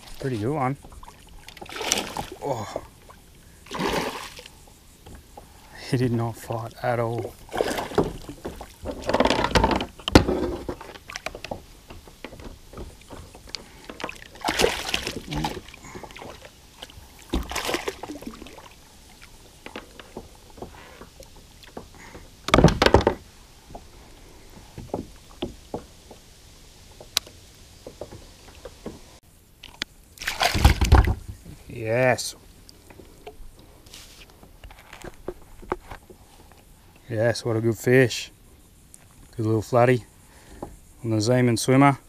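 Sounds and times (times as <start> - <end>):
fish splashing and thunking: 0.0 - 5.5, 7.0 - 26.2, 26.9 - 31.4.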